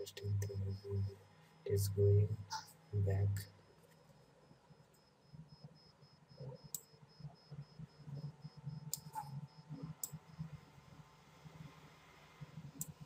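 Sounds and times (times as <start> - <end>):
low background hum: 0.0 - 13.0
computer mouse clicks: 8.9 - 9.3, 12.8 - 13.0
high-pitched pulsing tick: 8.9 - 9.3.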